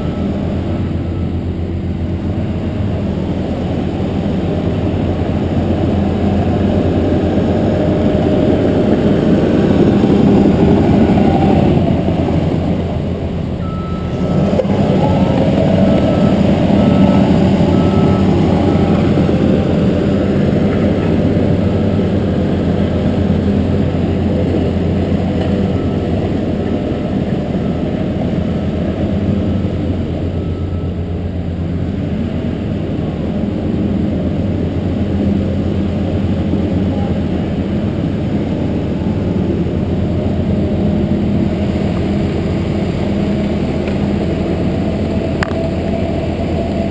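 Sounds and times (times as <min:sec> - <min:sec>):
backup alarm beeping: 0:00.0 - 0:01.4, 0:13.6 - 0:20.2
diesel machinery running: 0:00.0 - 0:46.9.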